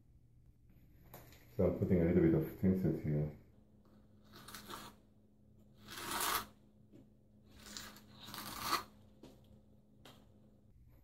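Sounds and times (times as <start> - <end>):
trowel scraping mortar: 4.2 - 5.0, 5.8 - 6.6, 7.5 - 9.0.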